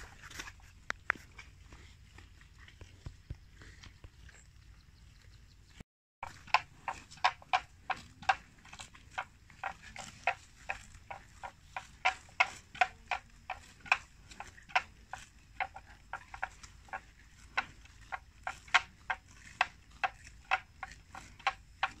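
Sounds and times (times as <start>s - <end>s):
crisp clicks and snaps of grazing: 0.0s - 22.0s.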